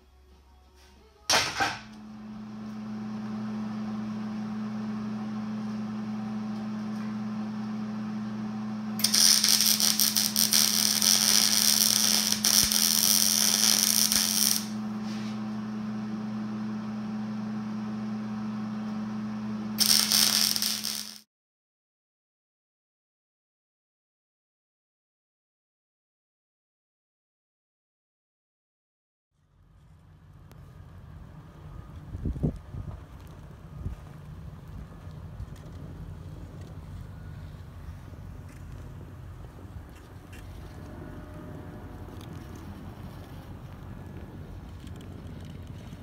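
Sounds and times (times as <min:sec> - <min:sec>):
welder humming: 0:01.3 - 0:21.3
welding arc crackling and sizzling: 0:09.0 - 0:14.9, 0:19.8 - 0:21.3, 0:42.1 - 0:46.0.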